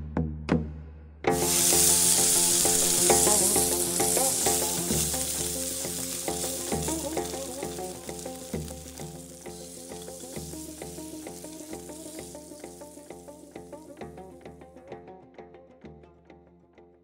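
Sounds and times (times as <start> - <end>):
sizzling hiss: 1.3 - 14.3
music of sustained notes: 1.3 - 16.9.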